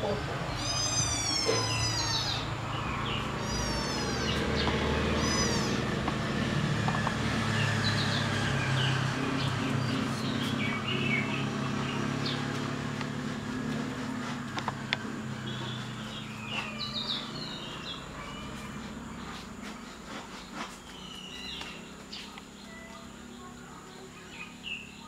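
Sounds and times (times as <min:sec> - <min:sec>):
kittens mewing: 0:00.0 - 0:06.4, 0:15.0 - 0:19.4.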